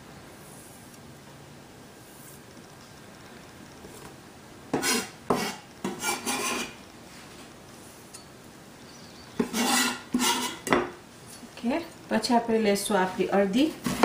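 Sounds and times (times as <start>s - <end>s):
knife scraping cutting board: 4.7s - 6.8s, 9.4s - 10.8s.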